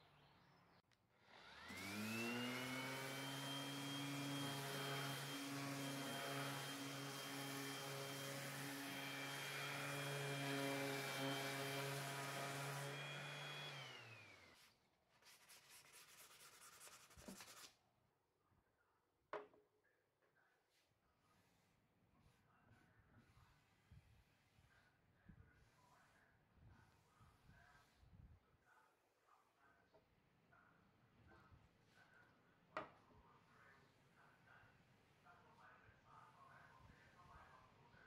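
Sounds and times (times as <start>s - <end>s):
orbital sander running: 1.3s - 14.6s
scratchy rubbing strokes: 14.5s - 17.8s, 20.7s - 26.2s.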